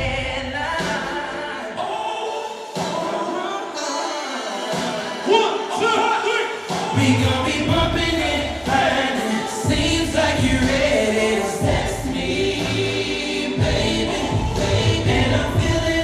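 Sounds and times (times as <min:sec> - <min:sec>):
soulful singing voice: 0:00.0 - 0:16.0
heavy bass notes: 0:07.0 - 0:16.0.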